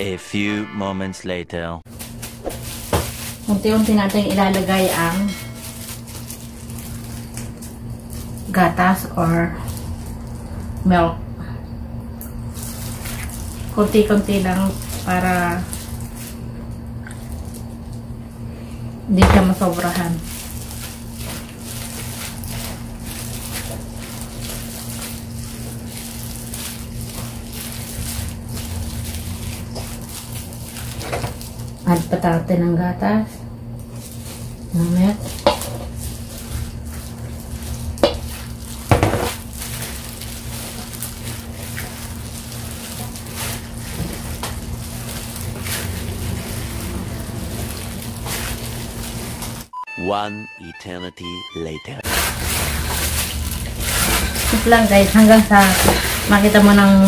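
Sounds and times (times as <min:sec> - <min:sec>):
low steady hum: 0:00.0 - 0:57.0
gloves rustling kneading dough: 0:01.9 - 0:10.9, 0:12.5 - 0:32.4, 0:33.0 - 0:49.7, 0:52.0 - 0:57.0
hands kneading dough in bowl: 0:33.9 - 0:49.6, 0:52.0 - 0:57.0.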